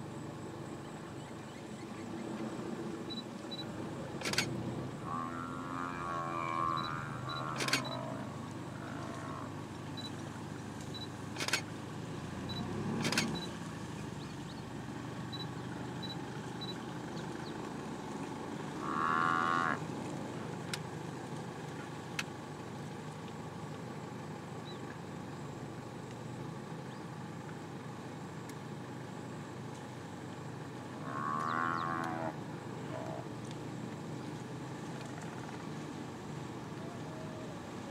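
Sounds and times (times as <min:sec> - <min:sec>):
buffalo bellowing: 0:04.2 - 0:09.7, 0:18.6 - 0:19.8, 0:30.9 - 0:33.3.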